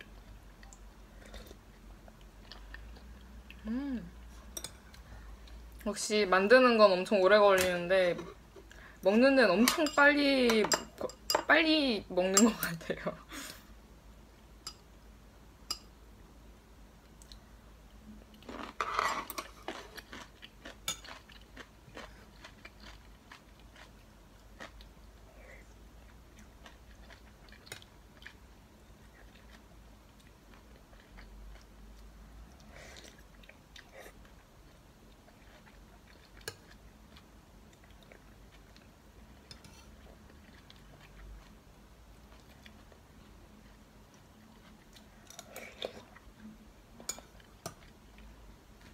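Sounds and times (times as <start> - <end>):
chewing and eating: 0.0 - 5.6, 18.2 - 48.9.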